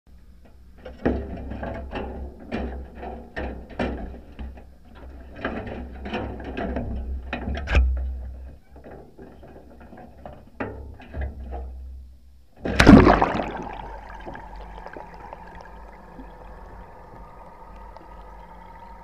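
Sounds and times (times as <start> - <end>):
low rumble: 13.5 - 19.0.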